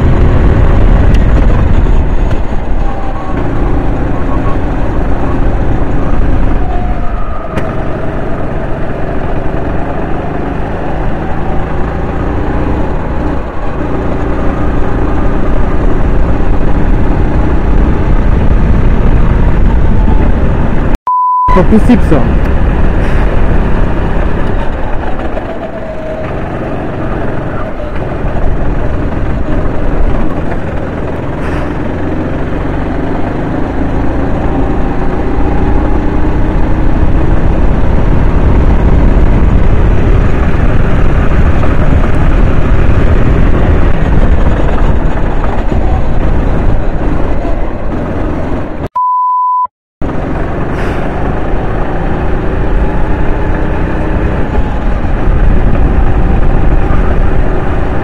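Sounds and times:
kart engine running hard: 0.0 - 21.0, 22.2 - 48.8, 50.0 - 58.0
steady beep: 21.1 - 22.0, 49.0 - 49.7.

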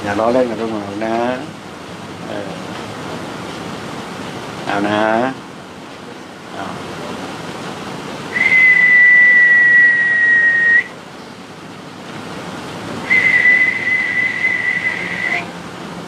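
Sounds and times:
high whistled notes: 8.4 - 10.9, 13.1 - 15.5.

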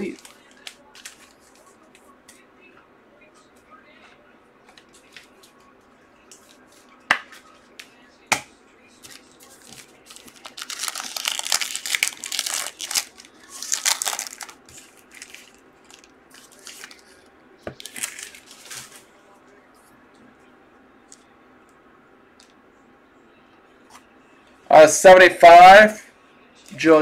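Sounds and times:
foil wrapper crinkling: 9.1 - 17.2, 17.8 - 19.0.

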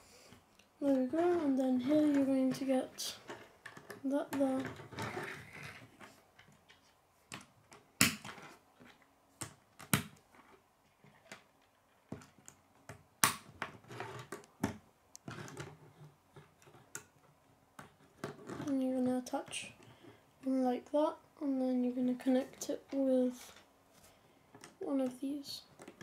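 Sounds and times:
soft plastic rattling: 13.7 - 20.6.

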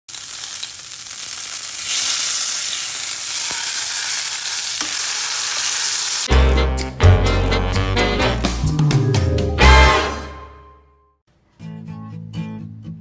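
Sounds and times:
beef sizzling in a frying pan: 0.1 - 6.3
music: 6.3 - 13.0.

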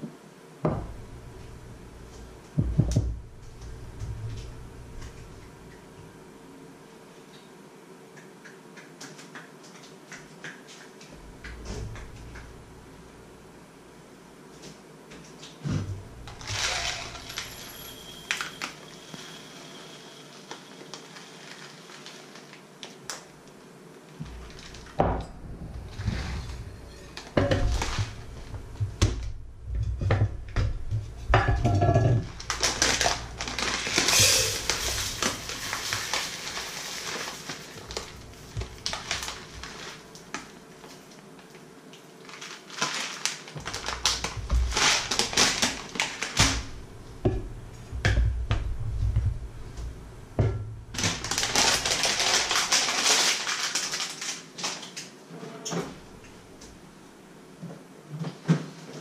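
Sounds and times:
plastic bag crinkling: 16.1 - 23.2, 24.1 - 29.2, 32.2 - 46.8, 50.9 - 55.2
dry pasta rattling into cup: 16.3 - 19.3, 32.3 - 38.2.

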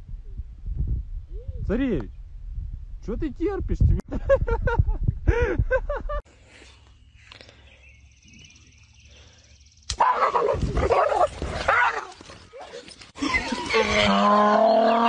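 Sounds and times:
dogs barking and growling: 9.9 - 15.0.

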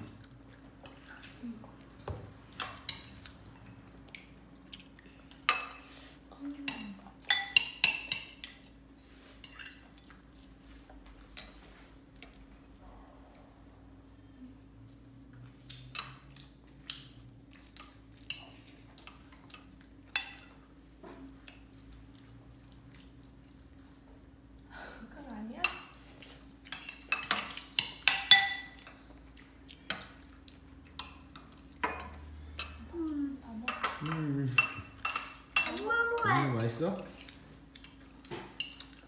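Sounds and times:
spoons clinking against bowls: 5.3 - 5.9, 6.7 - 8.7, 25.6 - 26.1, 26.7 - 29.0, 33.7 - 36.4.

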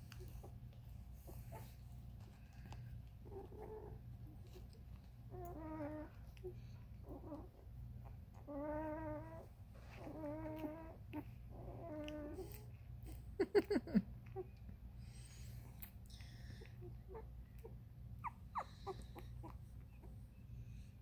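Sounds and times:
low steady hum: 0.0 - 21.0
puppies whimpering: 5.3 - 7.7, 8.4 - 12.6, 16.6 - 20.2.

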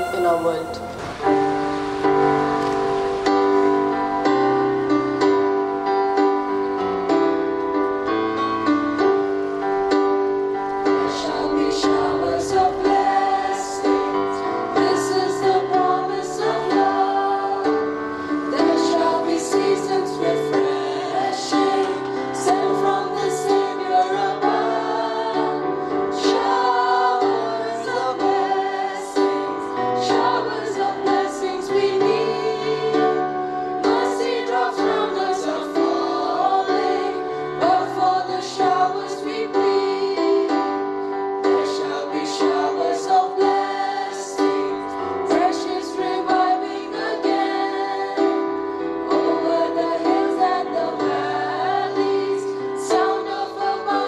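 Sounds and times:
instrumental accompaniment: 0.0 - 25.4
women singing together: 10.9 - 54.0.

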